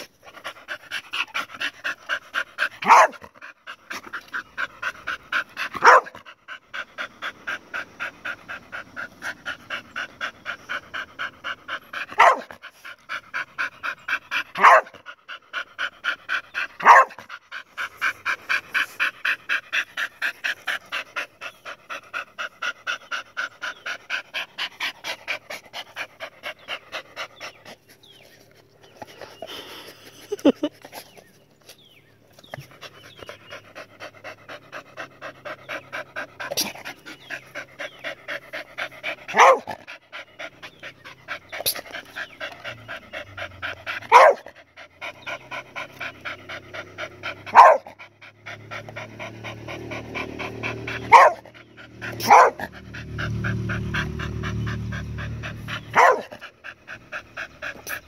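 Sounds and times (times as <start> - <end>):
dog panting with whine: 0.0 - 58.0
dog barking: 2.8 - 3.2, 5.8 - 6.2, 12.1 - 12.5, 14.6 - 15.0, 16.8 - 17.2, 39.3 - 39.7, 44.1 - 44.5, 47.5 - 47.9, 51.0 - 51.4, 52.1 - 52.7, 55.8 - 56.3.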